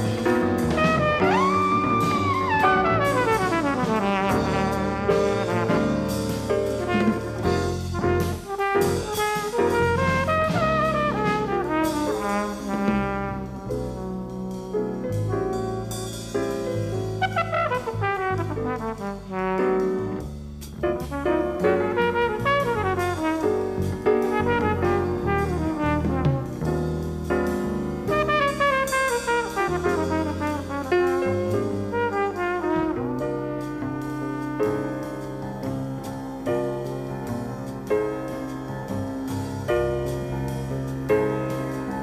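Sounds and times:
flugelhorn melody: 0.0 - 14.7, 17.1 - 20.2, 20.9 - 27.0, 28.0 - 35.4
drums: 0.0 - 42.0
piano: 0.0 - 42.0
upright bass: 0.0 - 42.0.

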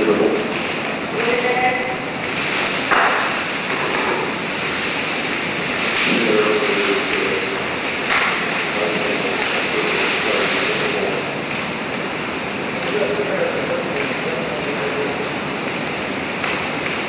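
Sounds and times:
fire crackles: 0.0 - 17.0
fire roaring: 0.0 - 17.0.

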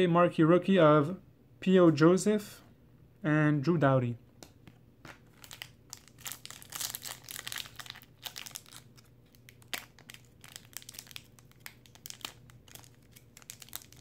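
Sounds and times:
plastic wrapper crinkling and tearing: 5.0 - 14.0.

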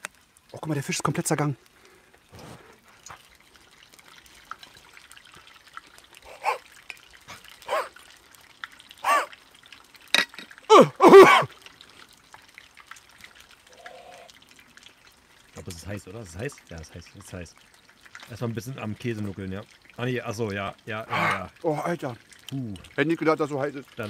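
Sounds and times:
man's pained cries and yelps: 10.7 - 11.5.

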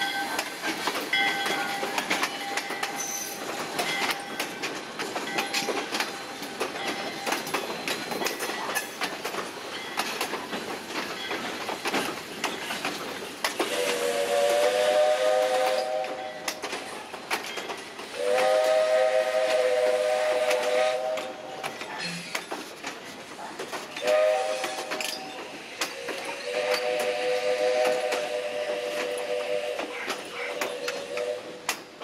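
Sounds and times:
train wheels clicking over rail joints: 0.0 - 32.0
steam locomotive whistle: 13.6 - 16.5, 18.1 - 21.6, 24.0 - 31.8.

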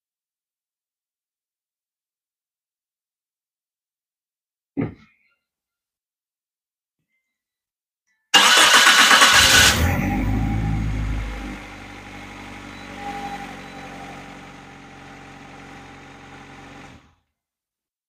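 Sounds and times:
car engine starting and idling: 8.4 - 17.1.

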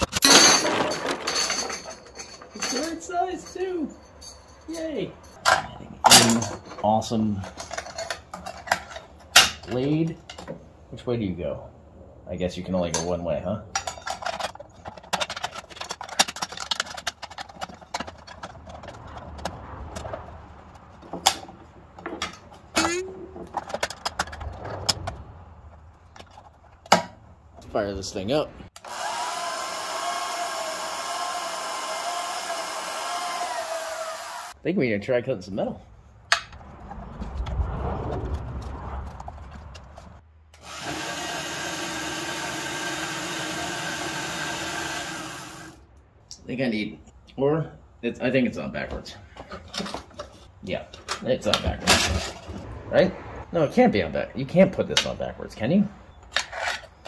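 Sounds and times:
metal band saw running: 28.8 - 34.5, 40.6 - 45.8.

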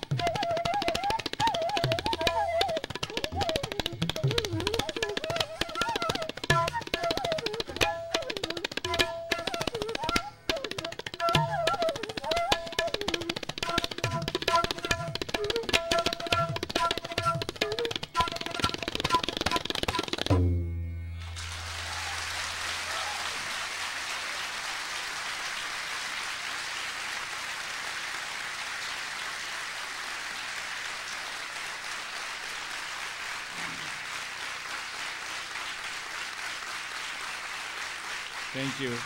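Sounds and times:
deep tabla stroke: 0.0 - 23.2
tabla and flute music: 0.0 - 24.8, 32.6 - 39.0
audience applause: 21.2 - 39.0.

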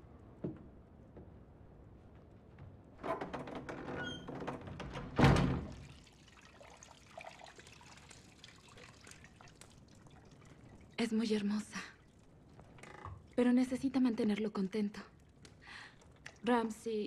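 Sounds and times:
bathwater splashing and pouring: 5.6 - 13.6, 15.1 - 16.8
small knocks and clatter: 12.5 - 13.3.

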